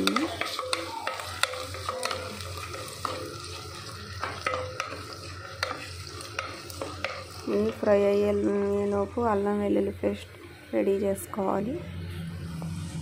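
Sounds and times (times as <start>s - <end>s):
wooden spoon scraping a pot: 0.0s - 7.9s
onions sizzling in hot oil: 0.0s - 13.0s.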